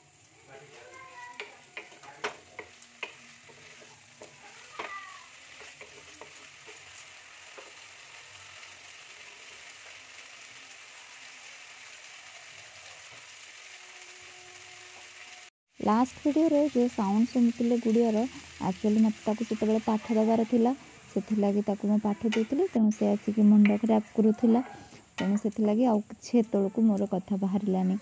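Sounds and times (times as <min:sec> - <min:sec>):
food sizzling in pan: 0:00.0 - 0:28.0
wooden spatula scraping pan: 0:01.4 - 0:07.9.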